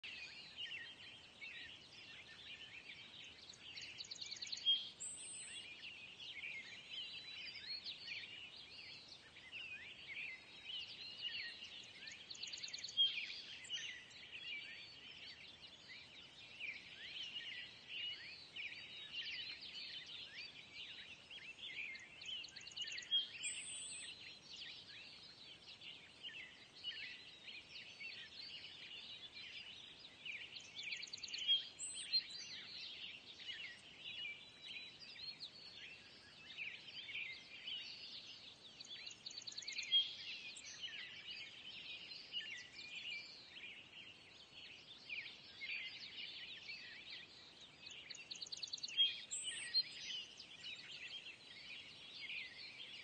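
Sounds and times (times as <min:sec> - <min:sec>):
small birds chirping: 0:00.0 - 0:53.0.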